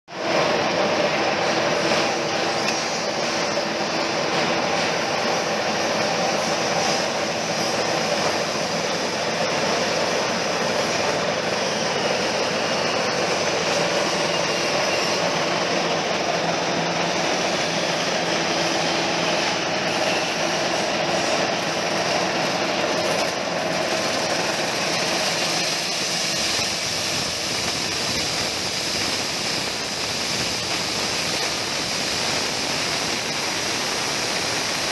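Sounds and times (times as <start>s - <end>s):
coffee huller engine running: 0.2s - 34.9s.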